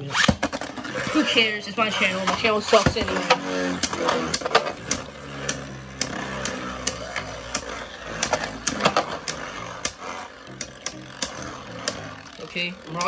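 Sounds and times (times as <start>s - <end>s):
spinning tops whirring: 0.0s - 13.0s
sharp plastic clacks: 2.1s - 12.2s.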